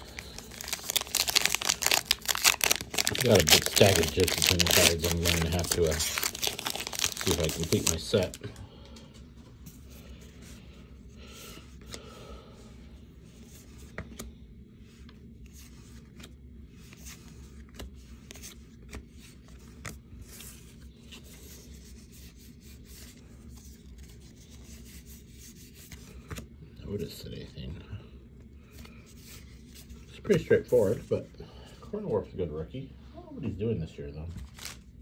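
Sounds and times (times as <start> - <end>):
cards being flipped through: 0.0 - 8.4, 15.0 - 26.5, 34.4 - 34.9
steady low hum: 0.0 - 34.2.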